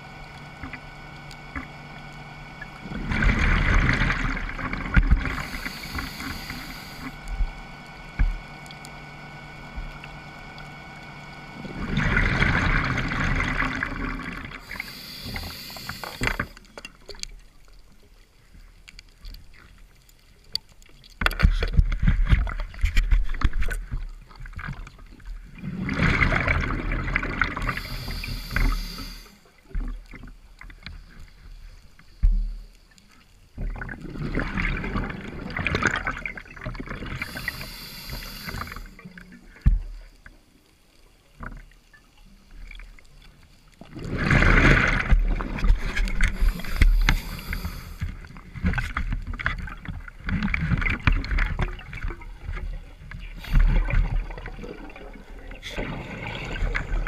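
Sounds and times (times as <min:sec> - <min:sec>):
exhaled bubbles rushing: 0:02.5 - 0:07.6, 0:11.6 - 0:14.9, 0:25.5 - 0:29.2, 0:33.7 - 0:39.0, 0:43.9 - 0:48.0, 0:50.5 - 0:57.0
short higher hiss: 0:05.3 - 0:07.2, 0:14.7 - 0:16.6, 0:27.6 - 0:29.4, 0:37.2 - 0:39.0, 0:46.3 - 0:48.1
steady low rumble: 0:45.6 - 0:48.6.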